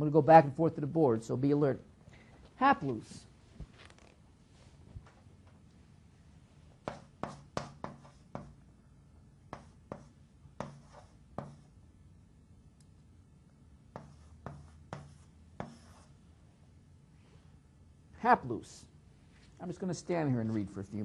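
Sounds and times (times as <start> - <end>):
writing strokes on a board: 6.8 - 8.6, 9.5 - 11.8, 13.9 - 16.2.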